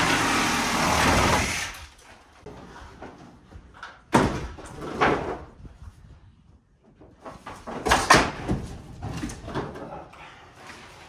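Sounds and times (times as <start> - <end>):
wooden boards knocking and clattering: 3.0 - 5.6, 7.1 - 10.0.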